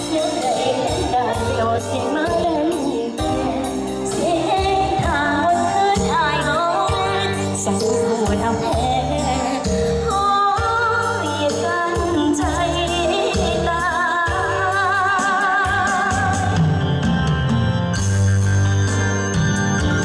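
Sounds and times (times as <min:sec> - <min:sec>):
woman singing with vibrato: 0:00.0 - 0:16.8
keyboard backing with bass: 0:00.0 - 0:20.0.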